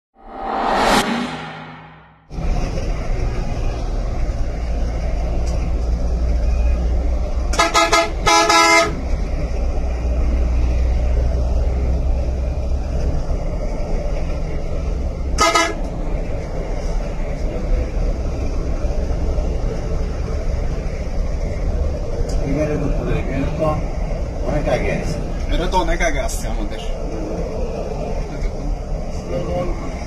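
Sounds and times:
bus engine and road noise: 0:00.1 - 0:30.0
vehicle horn blasts: 0:07.5 - 0:09.0, 0:15.4 - 0:15.8.

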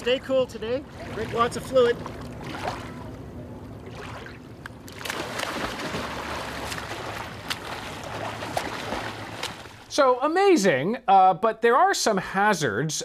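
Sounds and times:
water lapping: 0:00.0 - 0:10.0
swimmer splashing: 0:00.6 - 0:09.9.

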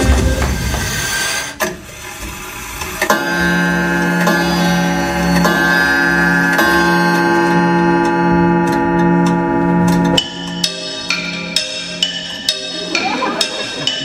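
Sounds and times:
clock ticking: 0:06.5 - 0:14.0.

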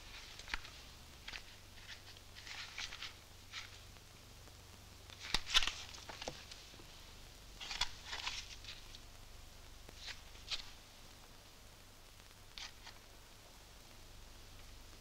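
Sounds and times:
papers rustling: 0:00.0 - 0:03.8, 0:05.1 - 0:06.8, 0:07.6 - 0:09.0, 0:10.0 - 0:10.8
faint low hum: 0:00.0 - 0:15.0.

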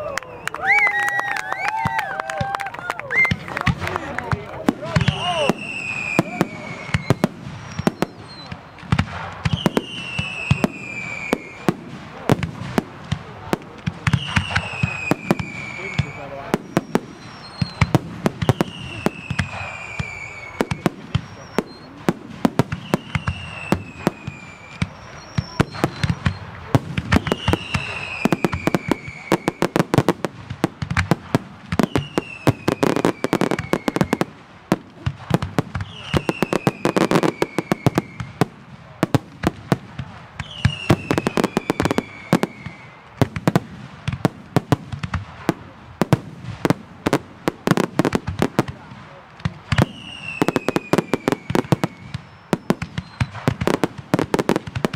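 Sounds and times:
falling firework whistle: 0:00.0 - 0:03.8, 0:04.7 - 0:11.8, 0:14.0 - 0:30.2, 0:30.9 - 0:34.4, 0:35.0 - 0:39.2, 0:40.4 - 0:43.6, 0:49.7 - 0:54.9
firework shell bursts and crackling: 0:01.7 - 0:54.9.

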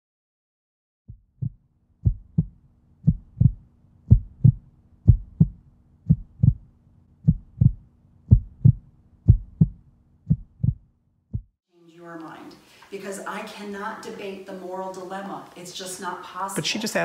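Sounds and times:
heartbeat thumps: 0:01.1 - 0:11.6.

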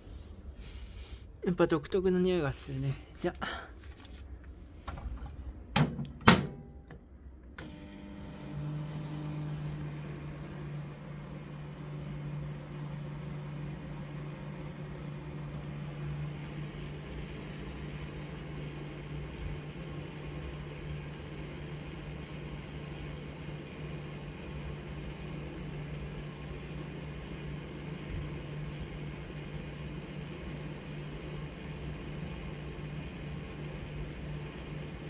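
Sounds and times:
microwave humming: 0:04.8 - 0:35.0
microwave door clicks: 0:05.7 - 0:07.0.

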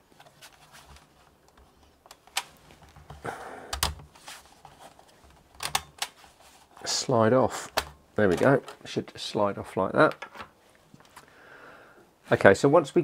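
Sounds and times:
plastic clicks and knocks: 0:01.5 - 0:04.1.

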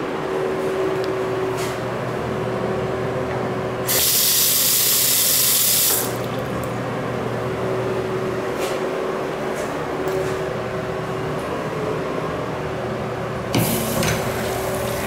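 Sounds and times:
steady background hum: 0:00.0 - 0:15.0
faucet water running: 0:03.9 - 0:06.6, 0:13.6 - 0:15.0.

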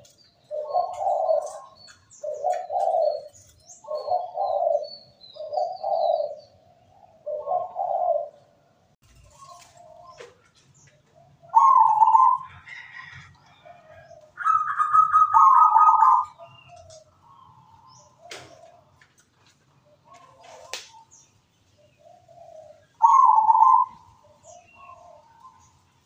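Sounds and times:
dove cooing: 0:00.0 - 0:08.6, 0:09.3 - 0:19.1, 0:19.7 - 0:21.2, 0:21.8 - 0:25.8.

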